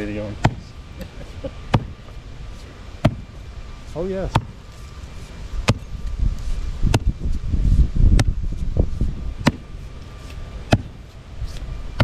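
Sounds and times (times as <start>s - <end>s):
low rumble: 4.5s - 10.1s.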